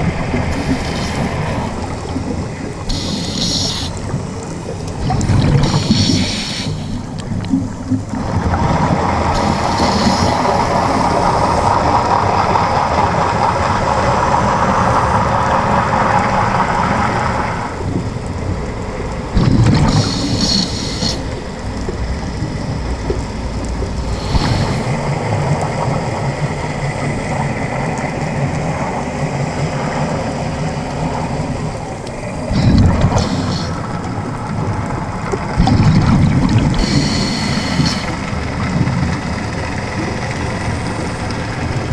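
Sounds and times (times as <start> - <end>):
underwater rumbling hiss: 0.0 - 17.8, 19.3 - 41.9
bubbles bursting underwater: 5.0 - 6.1, 19.3 - 20.8, 32.4 - 39.3.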